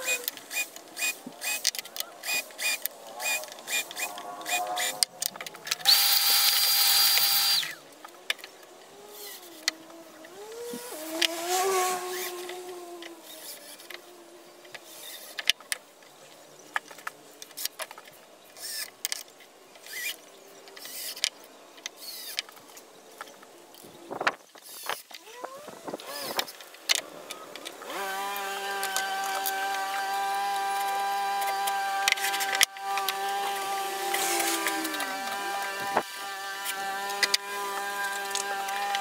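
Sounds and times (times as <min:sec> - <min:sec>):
cordless drill running: 0:00.0 - 0:05.0, 0:05.8 - 0:07.8, 0:10.3 - 0:12.6, 0:19.9 - 0:20.2, 0:26.0 - 0:26.5, 0:27.8 - 0:39.0
power tool whining: 0:00.0 - 0:15.5, 0:19.8 - 0:20.2, 0:24.6 - 0:39.0.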